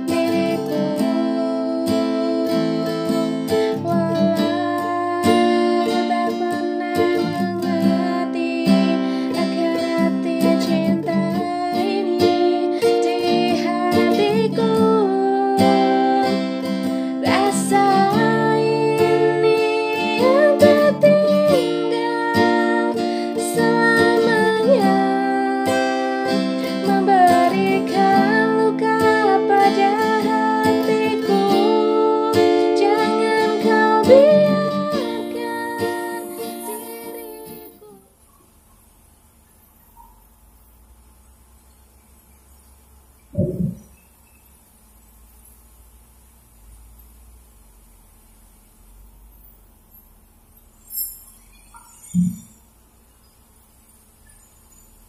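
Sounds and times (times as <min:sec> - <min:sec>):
strummed acoustic guitar: 0:00.0 - 0:38.0
woman singing: 0:00.0 - 0:38.1.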